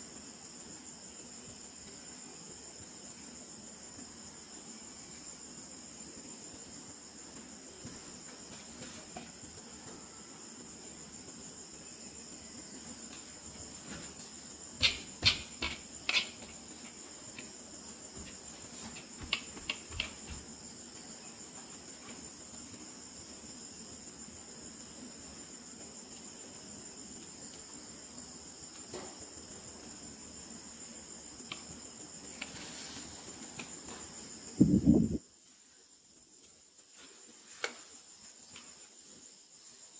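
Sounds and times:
plastic dolls clicking and tapping: 0:19.2 - 0:20.3.

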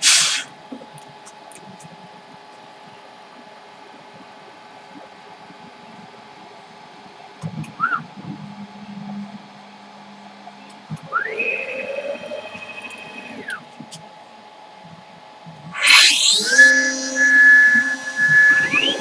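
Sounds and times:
router spindle high whine: 0:11.0 - 0:13.6, 0:15.7 - 0:19.0
stepper motors whining: 0:15.7 - 0:19.0.

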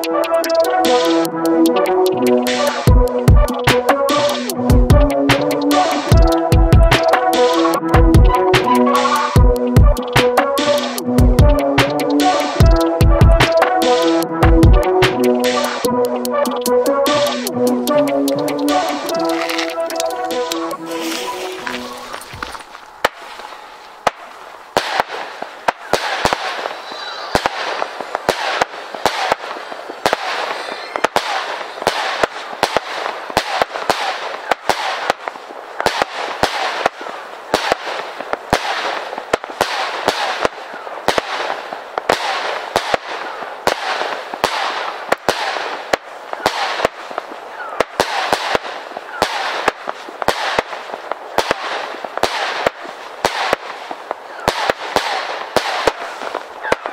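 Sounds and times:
hiss of burning fireworks: 0:18.7 - 0:56.9.

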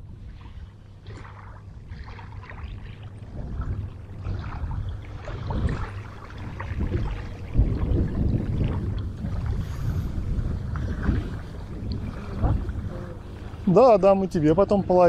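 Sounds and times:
wind rumble on microphone: 0:00.0 - 0:15.0.

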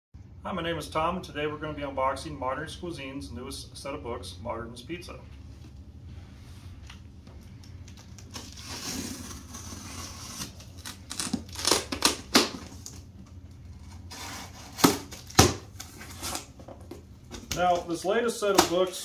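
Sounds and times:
tape and cardboard ripping: 0:07.9 - 0:13.0, 0:13.6 - 0:16.7
knife scraping packing tape: 0:08.2 - 0:12.7, 0:13.8 - 0:16.5.

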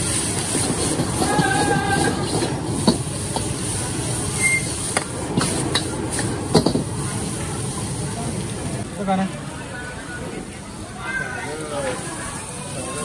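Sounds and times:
noodles sizzling in a wok: 0:00.0 - 0:09.2
gas burner roaring: 0:00.0 - 0:13.0.

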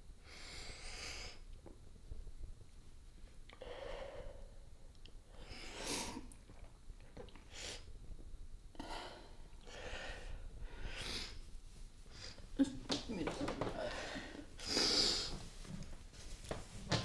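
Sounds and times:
woman crying: 0:12.6 - 0:14.1.

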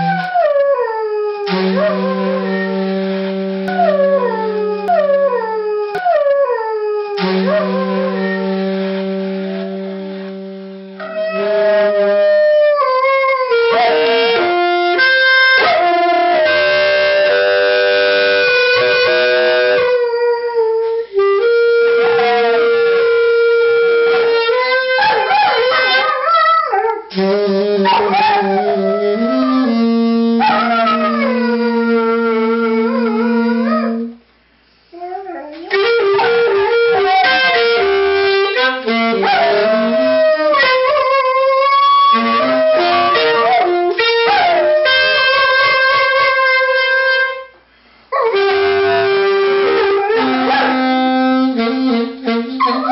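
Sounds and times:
saxophone long notes: 0:00.0 - 0:34.3, 0:34.9 - 0:52.9
dog howling and whimpering: 0:22.0 - 0:22.8, 0:24.1 - 0:27.0, 0:27.9 - 0:29.7, 0:35.0 - 0:36.3, 0:48.2 - 0:51.0, 0:52.6 - 0:52.9.

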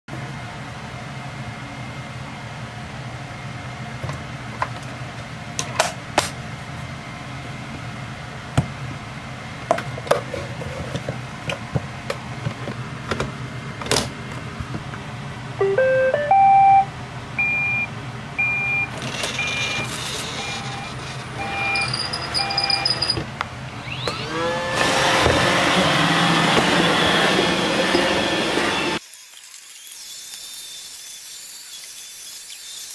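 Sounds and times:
robot vacuum rising chime: 0:15.6 - 0:23.2, 0:25.8 - 0:29.0
short beeps: 0:15.6 - 0:23.2
robot vacuum motor whining: 0:18.8 - 0:23.2, 0:23.8 - 0:32.9.

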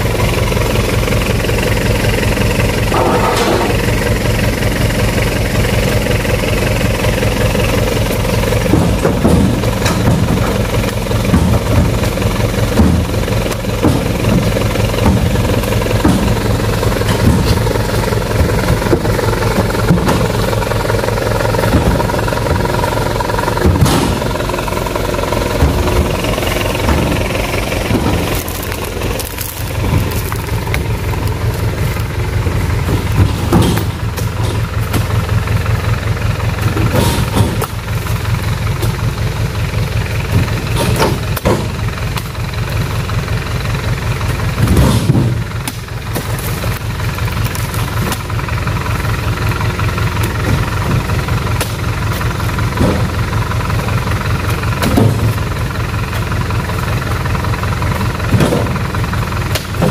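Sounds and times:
truck engine idling: 0:00.0 - 0:59.9
heavy thuds in truck bed: 0:07.6 - 0:28.6, 0:32.4 - 0:35.2, 0:36.6 - 0:37.9, 0:40.3 - 0:41.8, 0:44.5 - 0:45.8, 0:52.7 - 0:53.3, 0:54.8 - 0:55.5, 0:58.3 - 0:58.9.

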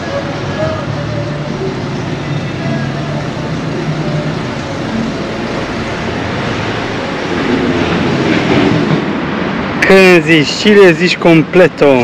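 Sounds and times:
faint voices: 0:00.0 - 0:06.0
city traffic: 0:00.0 - 0:12.0.

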